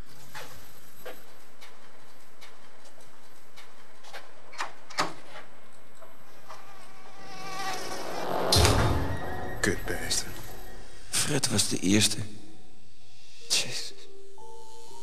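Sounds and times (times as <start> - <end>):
mosquitoes buzzing: 6.3 - 11.1.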